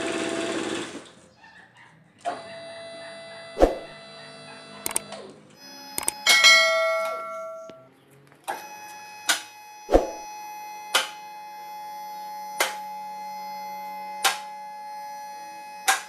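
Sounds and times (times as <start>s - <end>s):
quick clicks: 4.8s - 5.1s, 6.0s - 6.2s
steady ringing tone: 5.6s - 7.9s
bell chime: 6.2s - 7.9s.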